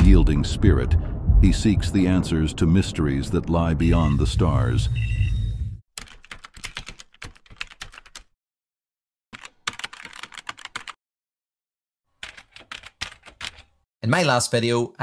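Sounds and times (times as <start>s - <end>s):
loud low rumble: 0.0s - 5.8s
keyboard typing: 6.0s - 8.3s, 9.4s - 11.0s, 12.2s - 13.7s.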